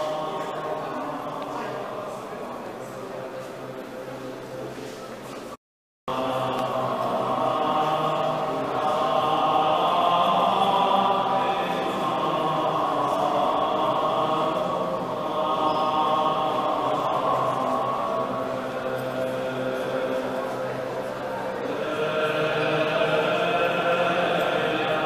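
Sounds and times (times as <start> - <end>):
choir singing held chords: 0.0 - 4.8, 6.1 - 25.0.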